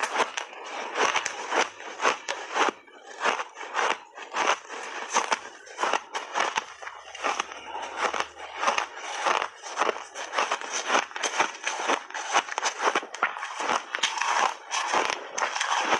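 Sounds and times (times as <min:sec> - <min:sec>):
shaved ice crunching: 0:00.0 - 0:15.9.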